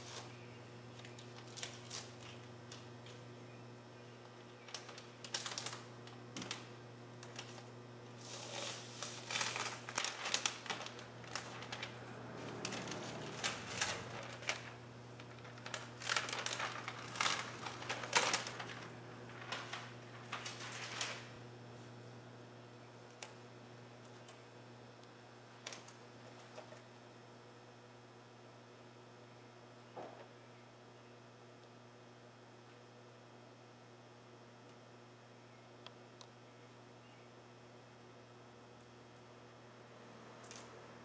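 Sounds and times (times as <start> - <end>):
steady low hum: 0.0 - 41.0
paper rustling and crinkling: 1.0 - 3.2, 4.6 - 21.4
tape being peeled: 1.0 - 3.2, 4.6 - 21.3.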